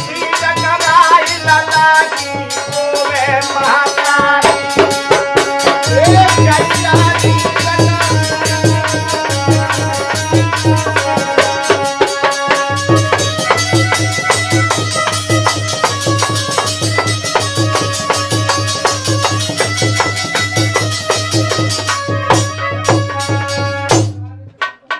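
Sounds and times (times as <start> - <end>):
harmonium held notes: 0.0 - 24.2
fast dholak rhythm: 0.0 - 24.9.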